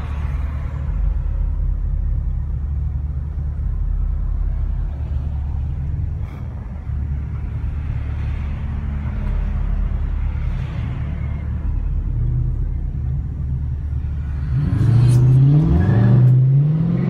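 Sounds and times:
car engine idling: 0.0 - 14.6
engine revving up: 14.3 - 17.0.

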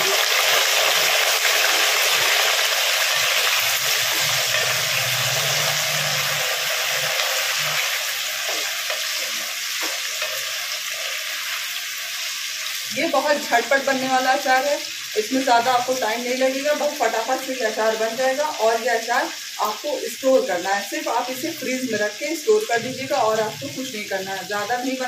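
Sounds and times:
potatoes sizzling in hot oil: 0.0 - 25.0.

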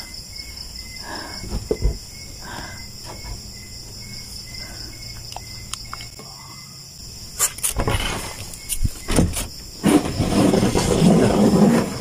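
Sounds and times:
night insects chirring: 0.0 - 12.0
soft thumps: 1.4 - 2.1.

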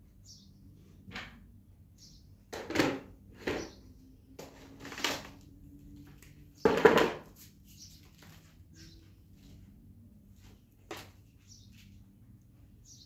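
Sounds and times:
clatter and rustling: 4.4 - 5.5.

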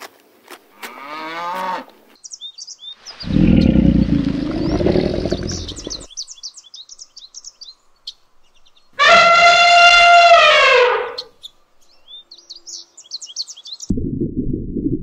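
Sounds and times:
small birds chirping: 2.2 - 9.0, 11.1 - 13.9
crocodile growling: 3.2 - 6.1
cow mooing: 3.3 - 6.1.

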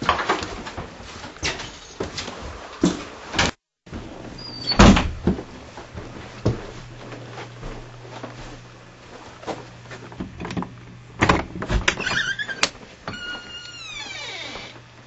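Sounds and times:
door hinge creaking: 4.4 - 5.0, 11.8 - 14.9.

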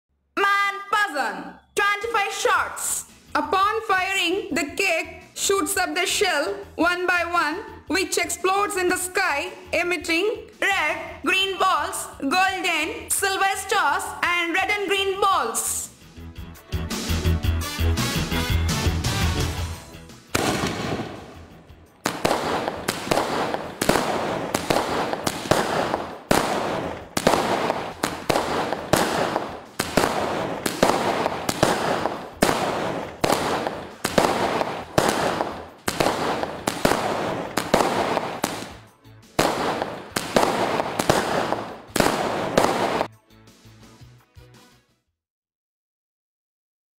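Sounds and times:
firework crackle: 20.3 - 38.8, 39.4 - 43.1
firework shells bursting: 20.3 - 43.1.

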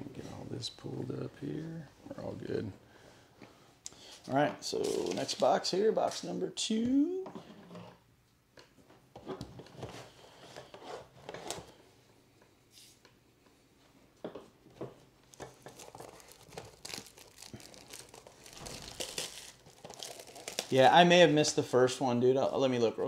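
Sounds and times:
plastic wrap crinkling and tearing: 15.2 - 21.0.

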